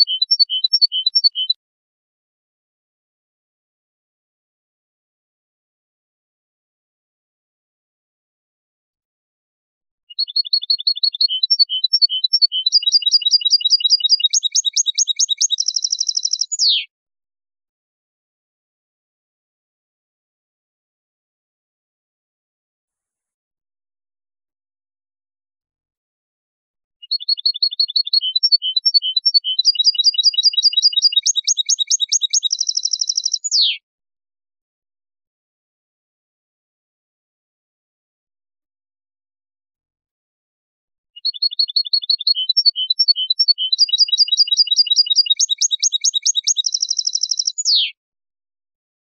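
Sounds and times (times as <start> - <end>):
goldfinch song: 0.0 - 1.6, 10.1 - 16.9, 27.0 - 33.8, 41.2 - 48.0.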